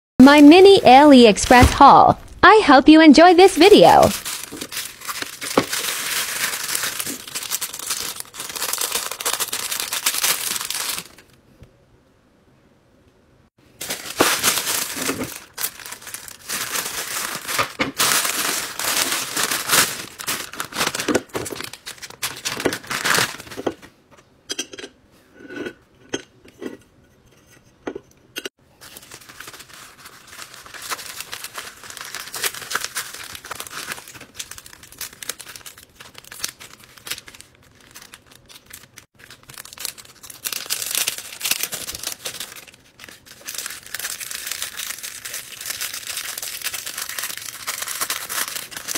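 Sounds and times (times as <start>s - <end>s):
plastic bag crinkling and tearing: 3.8s - 11.4s, 13.7s - 23.8s, 28.8s - 48.9s
plastic packaging crinkling: 3.8s - 11.4s, 13.7s - 23.9s, 28.8s - 48.9s.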